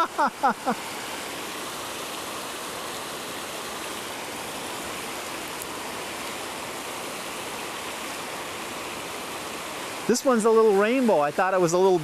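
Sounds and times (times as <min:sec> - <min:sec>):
rushing water: 0:00.0 - 0:12.0.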